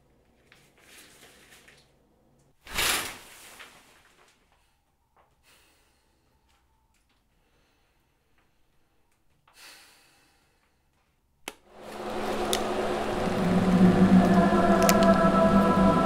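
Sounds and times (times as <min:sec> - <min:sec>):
curtain rustling: 0:00.5 - 0:01.9, 0:02.6 - 0:04.7, 0:11.7 - 0:16.0
shower curtain swish: 0:00.6 - 0:01.8, 0:02.6 - 0:04.6, 0:11.7 - 0:15.3.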